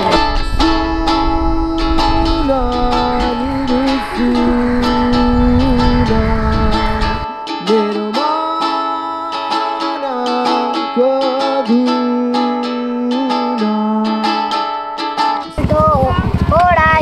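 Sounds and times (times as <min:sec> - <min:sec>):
low rumble: 0:00.0 - 0:07.3
man singing: 0:00.0 - 0:14.8
ukulele strumming: 0:00.0 - 0:16.9.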